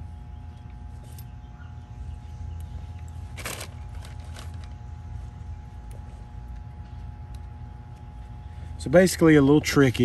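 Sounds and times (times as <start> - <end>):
low background hum: 0.0 - 10.0
rustle of wiring being handled: 2.6 - 8.3.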